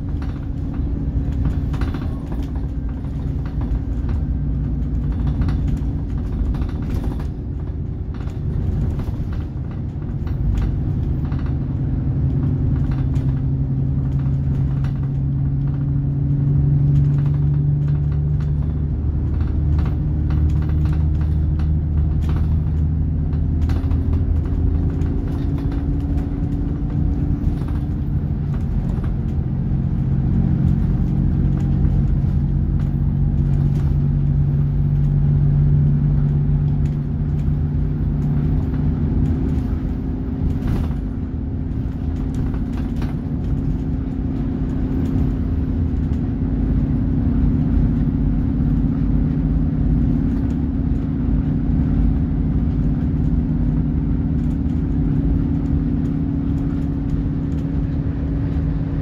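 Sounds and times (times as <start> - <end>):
bus engine drone: 0.0 - 59.0
rattles and clicks from bus body: 0.0 - 59.0
road rumble: 0.0 - 59.0.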